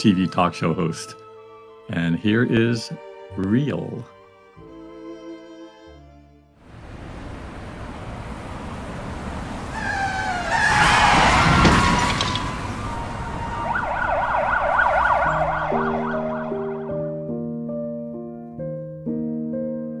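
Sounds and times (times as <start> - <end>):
city noise: 6.6 - 17.0
emergency vehicle siren: 6.8 - 17.1
soft piano music: 12.5 - 20.0.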